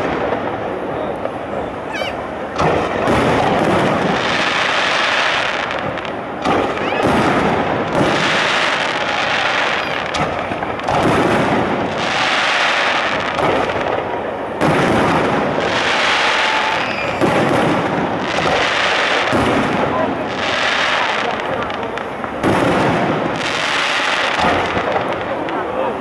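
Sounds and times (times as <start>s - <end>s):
crackling hiss: 0.0s - 26.0s
firework shells bursting: 1.2s - 19.7s.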